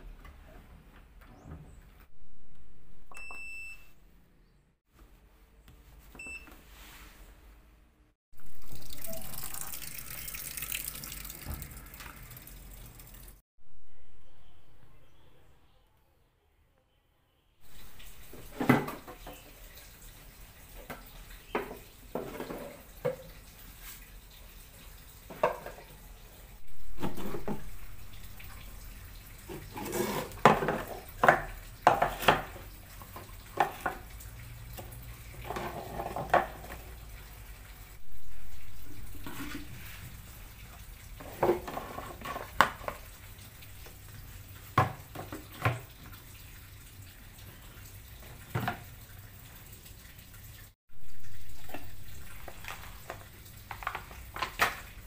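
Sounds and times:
plastic baskets and bottles clattering: 0:17.6 - 0:19.7, 0:20.6 - 0:24.0, 0:25.2 - 0:26.1, 0:26.7 - 0:28.4, 0:29.4 - 0:37.0, 0:38.6 - 0:44.0, 0:44.6 - 0:46.2, 0:48.2 - 0:49.0, 0:51.1 - 0:55.0.

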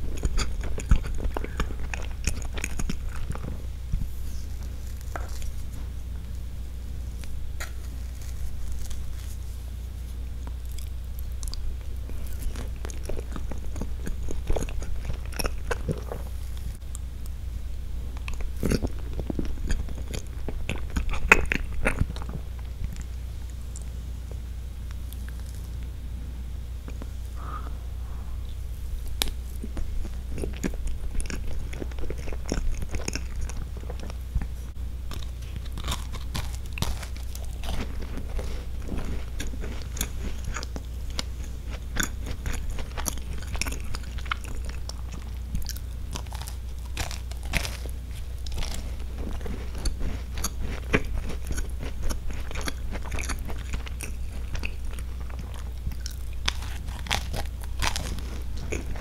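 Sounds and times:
crisp biscuit crunches: 0:00.0 - 0:05.8, 0:07.1 - 0:17.0, 0:29.0 - 0:59.0
chewing and biting: 0:00.0 - 0:17.4, 0:18.1 - 0:25.9, 0:28.5 - 0:59.0.

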